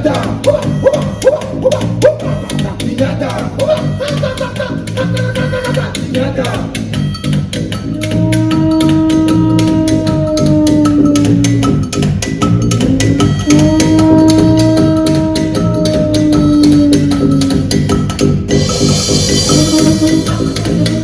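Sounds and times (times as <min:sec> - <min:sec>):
fast percussion beat: 0:00.0 - 0:21.0
trumpet long notes: 0:13.4 - 0:17.2, 0:18.6 - 0:21.0.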